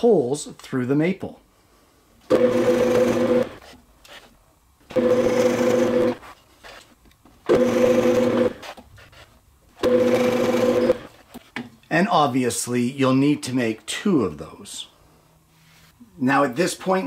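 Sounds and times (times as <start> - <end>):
drill press boring wood: 2.3 - 3.7, 4.9 - 6.2, 7.4 - 8.8, 9.8 - 11.2.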